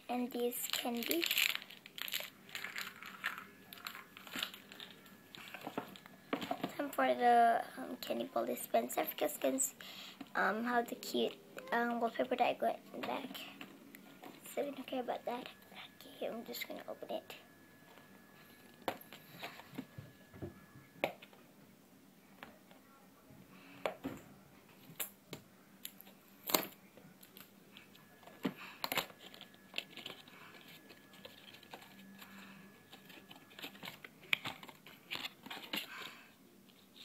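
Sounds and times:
cardboard packaging being handled: 0:00.7 - 0:06.6.

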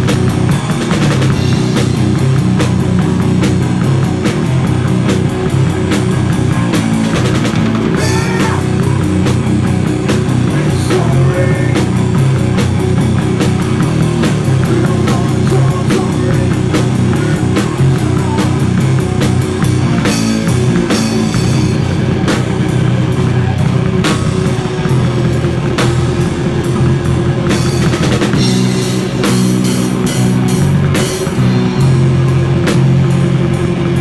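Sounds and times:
drum kit rock beat: 0:00.0 - 0:34.0
sustained guitar and bass: 0:00.0 - 0:34.0.

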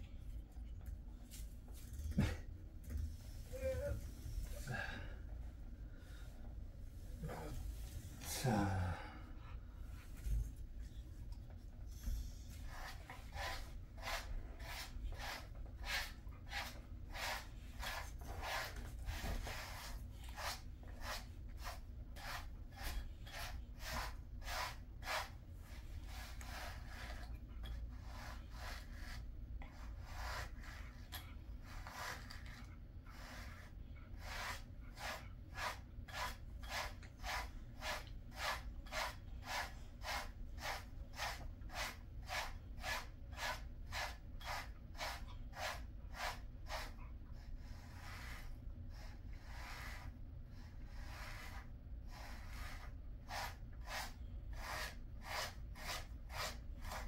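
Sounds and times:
brush raking through dog fur: 0:12.1 - 0:47.0, 0:47.7 - 0:57.0.

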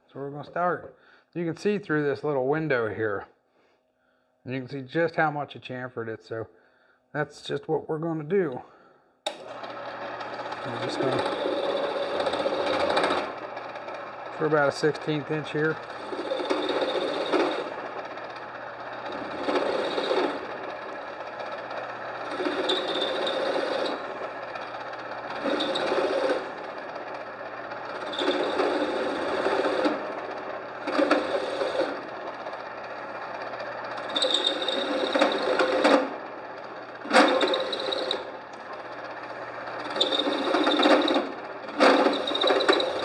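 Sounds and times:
drill press motor hum: 0:09.2 - 0:43.0
cutter chamfering metal: 0:37.0 - 0:38.3, 0:39.8 - 0:43.0.

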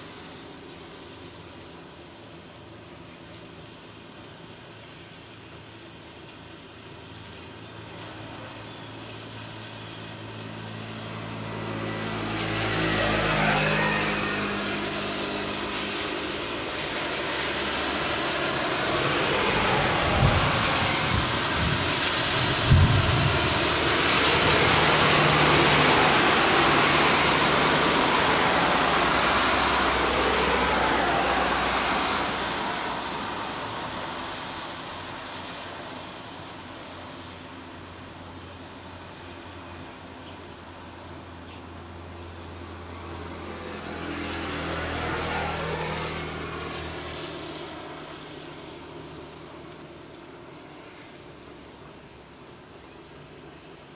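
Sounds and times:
vehicle passing close: 0:08.1 - 0:35.6.

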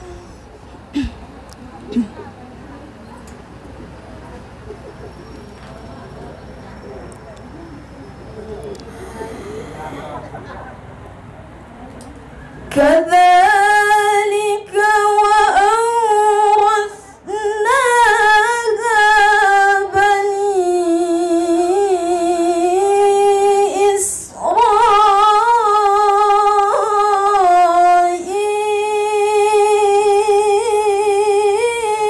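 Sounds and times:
woman reciting melodically: 0:12.6 - 0:32.0.

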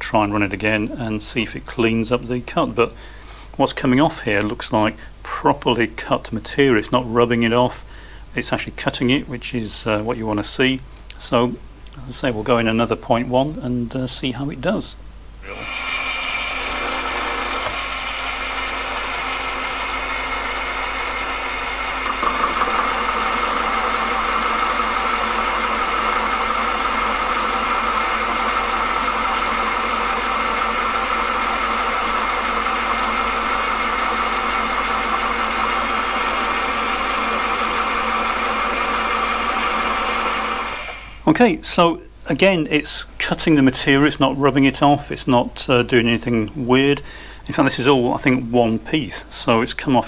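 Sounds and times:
lathe running: 0:15.4 - 0:41.2
lathe tool cutting metal: 0:15.5 - 0:41.1.

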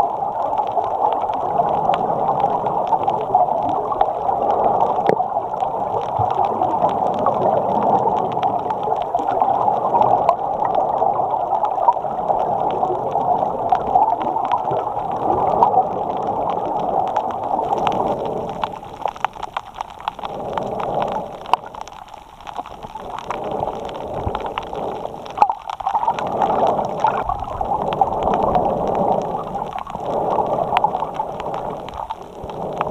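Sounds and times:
gurgling water: 0:00.0 - 0:32.9
small clicks: 0:11.6 - 0:32.9.

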